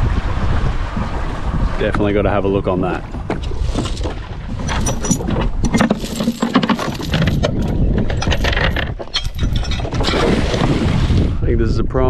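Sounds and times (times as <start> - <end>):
anchor chain rattling: 3.7 - 10.6.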